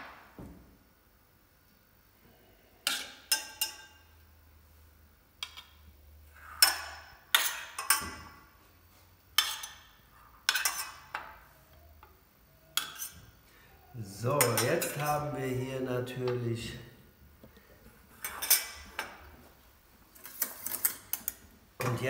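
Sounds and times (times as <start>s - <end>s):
metal spoon clinking on saucepan: 2.8s - 4.2s, 12.7s - 13.2s, 14.4s - 15.2s.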